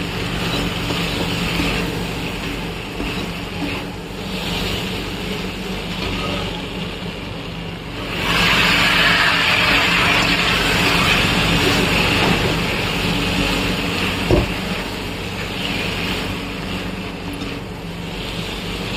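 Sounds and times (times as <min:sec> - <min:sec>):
chickpeas sizzling in pan: 0:07.8 - 0:18.9.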